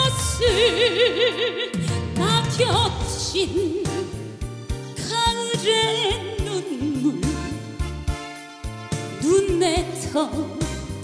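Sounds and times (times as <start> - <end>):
woman singing with vibrato: 0.0 - 4.4, 5.0 - 7.6, 9.2 - 10.8
live band playing: 0.0 - 11.0.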